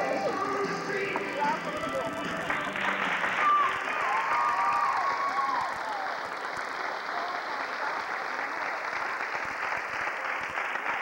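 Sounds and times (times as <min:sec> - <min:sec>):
dance music: 0:00.0 - 0:03.8
audience applauding: 0:02.2 - 0:11.0.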